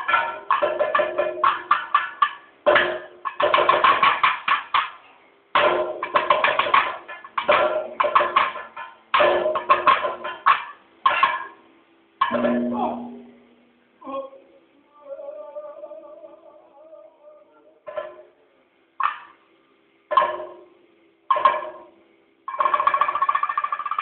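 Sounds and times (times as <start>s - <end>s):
drum beaten with sticks: 0.0s - 13.7s, 17.8s - 18.4s, 19.0s - 19.4s, 20.1s - 24.0s.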